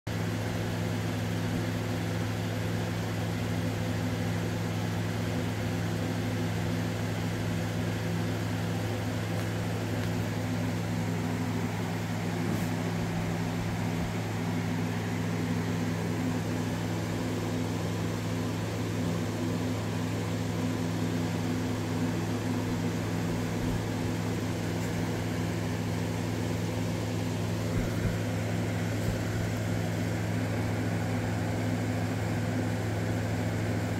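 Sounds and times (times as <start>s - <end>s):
air conditioner humming: 0.2s - 33.9s.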